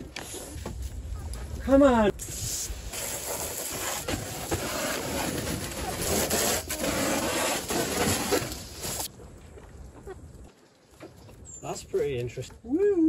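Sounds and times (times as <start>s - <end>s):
hose scraping on ground: 2.2s - 9.1s
water spraying from hose: 2.2s - 9.1s.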